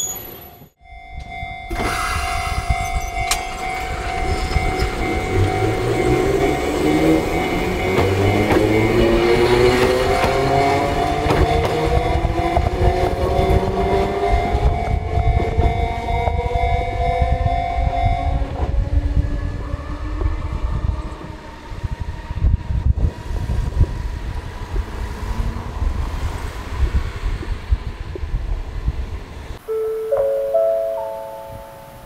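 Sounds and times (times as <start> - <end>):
train wheels clattering on rails: 1.7 - 16.6.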